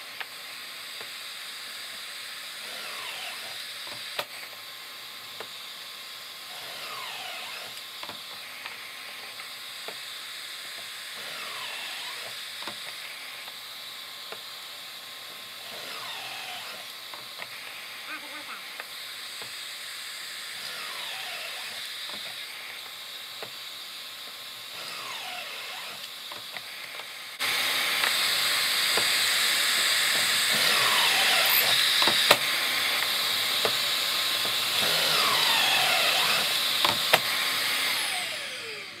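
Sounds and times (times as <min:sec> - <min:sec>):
cordless drill whining: 0:00.0 - 0:39.0
shop vacuum rushing: 0:24.8 - 0:26.2, 0:26.8 - 0:39.0.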